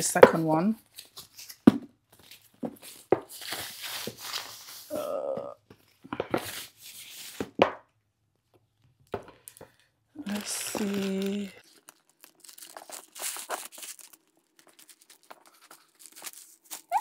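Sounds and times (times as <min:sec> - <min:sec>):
handbag rustling: 0:10.2 - 0:17.0.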